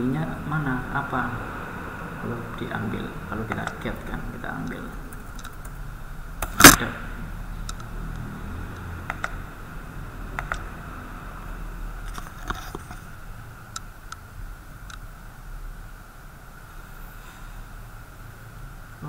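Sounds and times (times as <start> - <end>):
faint steady hum: 0.0 - 19.0
mouse and keyboard clicks: 3.5 - 3.8, 9.1 - 9.4, 10.4 - 10.7.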